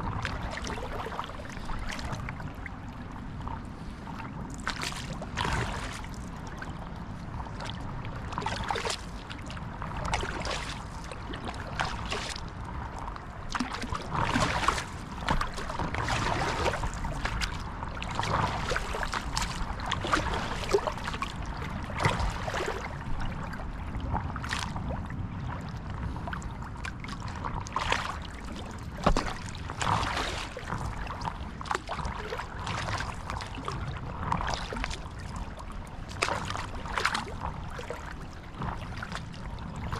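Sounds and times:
paddle splashing water: 0.0s - 39.9s
steady wash of water: 0.0s - 39.9s.

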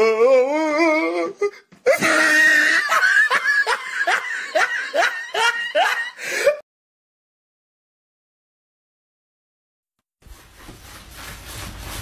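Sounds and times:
person laughing hard: 1.9s - 6.6s.

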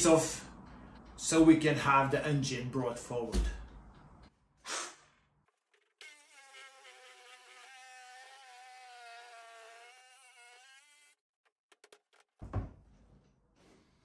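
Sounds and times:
reciprocating saw cutting wood: 6.0s - 12.3s.

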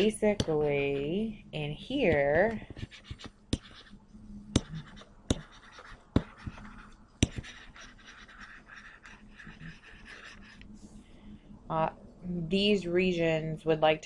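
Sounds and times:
stylus tapping on screen: 0.0s - 0.7s, 2.0s - 3.9s, 4.5s - 7.7s
stylus scratching: 0.0s - 1.3s, 2.0s - 11.0s.

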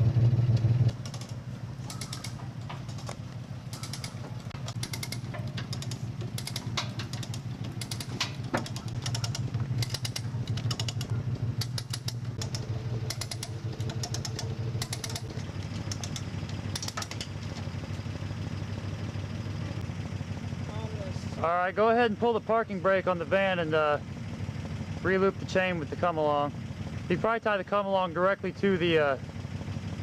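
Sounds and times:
engine idling: 0.0s - 30.0s
winch ratcheting clicks: 0.5s - 17.6s.

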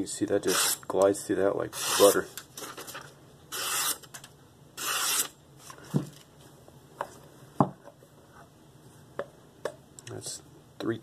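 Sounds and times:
knife slicing paper: 3.5s - 4.1s.

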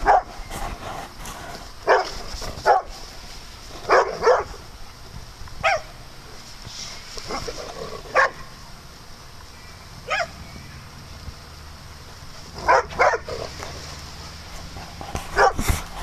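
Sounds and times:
dogs barking: 0.0s - 0.4s, 1.8s - 3.0s, 3.9s - 4.6s, 5.6s - 5.9s, 7.3s - 8.5s, 10.0s - 10.4s, 12.5s - 13.7s, 14.8s - 15.7s.

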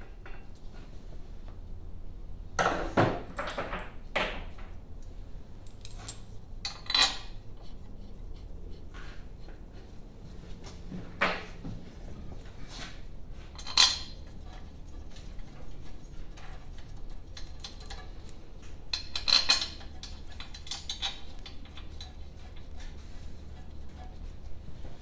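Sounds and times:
steady low hum: 3.9s - 25.0s
metal tools clinking and clanking: 5.6s - 7.4s, 13.6s - 14.6s, 16.4s - 22.2s.

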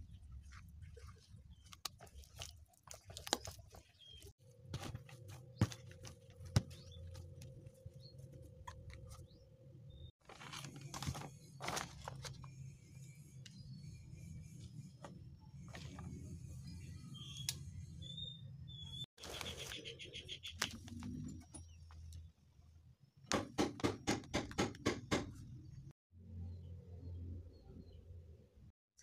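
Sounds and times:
dough squishing: 0.0s - 9.4s.

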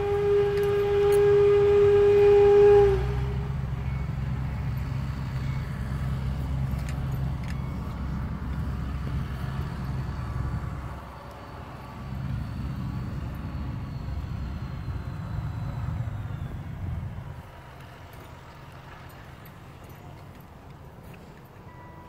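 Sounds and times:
loud whistle tone: 0.0s - 6.2s, 11.1s - 18.3s
engine rumbling: 0.0s - 22.0s.

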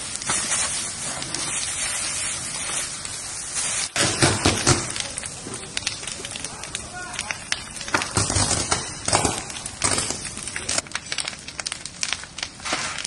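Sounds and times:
fire crackling: 0.0s - 13.0s
fire hose spraying water: 0.0s - 13.0s
loud sharp pops: 4.0s - 5.6s, 7.3s - 11.0s.

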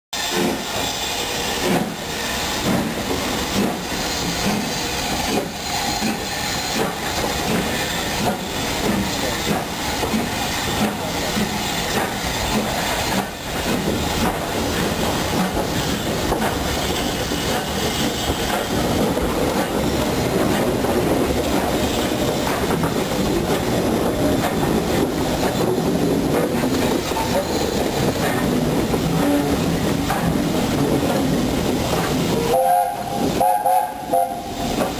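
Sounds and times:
steam hiss: 0.2s - 34.9s
train running rumble: 0.2s - 34.9s
wheels clicking over rail joints: 5.3s - 32.5s.

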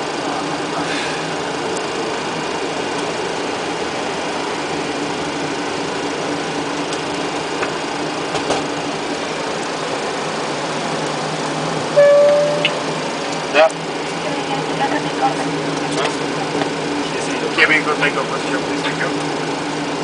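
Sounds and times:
cockpit engine hum: 0.0s - 20.0s
short loud steady tone: 12.0s - 12.9s.

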